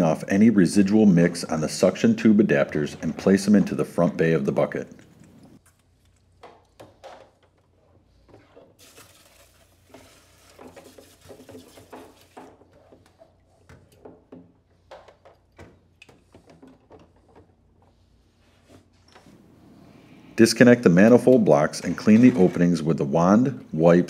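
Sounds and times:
plastic parts knocking and rattling: 6.3s - 17.8s.

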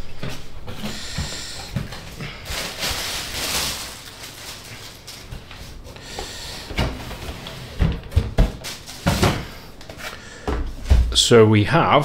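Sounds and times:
plastic film rustling: 1.8s - 9.4s.

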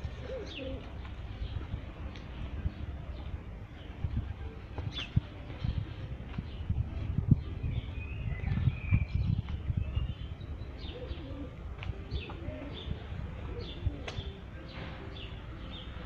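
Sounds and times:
pigeon cooing: 0.0s - 1.0s, 10.8s - 15.0s
wind buffeting on microphone: 0.0s - 15.3s
birds chirping: 0.0s - 16.0s.

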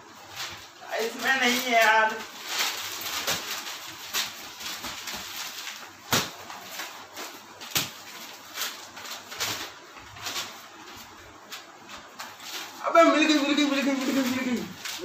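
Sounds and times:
newspaper pages rustling: 0.0s - 15.0s.

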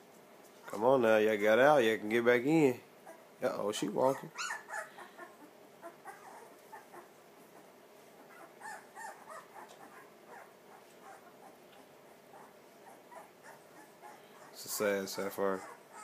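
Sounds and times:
puppies squeaking and whimpering: 3.0s - 3.3s, 4.2s - 16.0s.

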